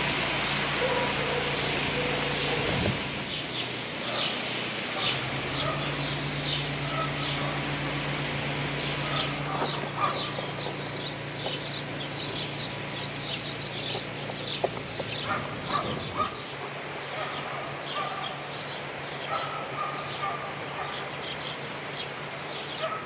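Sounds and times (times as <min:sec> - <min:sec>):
steady low hum: 0:00.0 - 0:22.7
small birds chirping: 0:05.0 - 0:07.8, 0:08.8 - 0:23.0.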